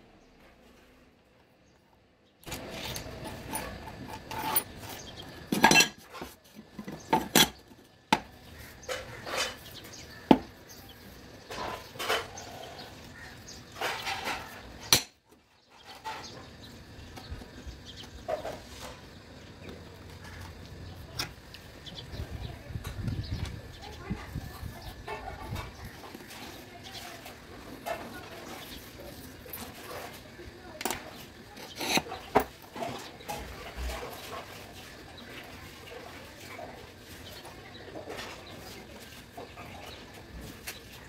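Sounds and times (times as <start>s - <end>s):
steel sheets clinking and clattering: 2.5s - 7.6s.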